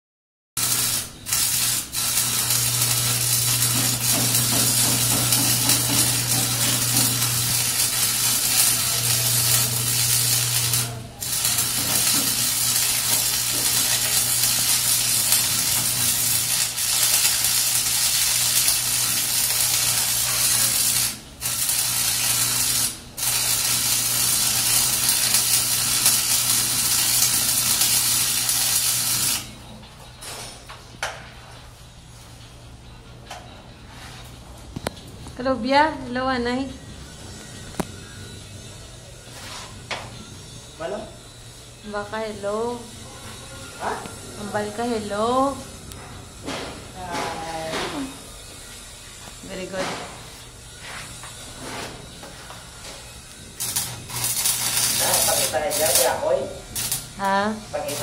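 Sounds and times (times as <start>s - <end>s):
welding arc crackling: 0.6s - 29.6s, 43.8s - 58.0s.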